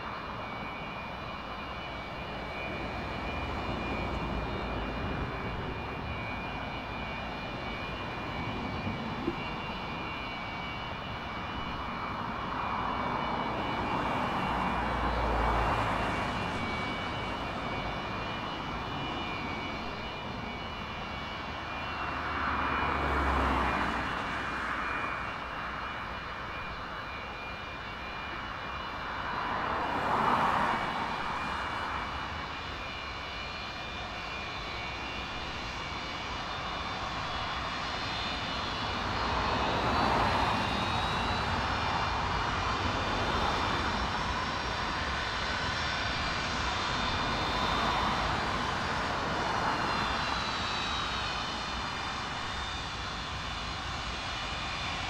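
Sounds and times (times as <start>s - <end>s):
high steady engine tones: 0.0s - 55.0s
jet engines rushing whine: 0.0s - 55.0s.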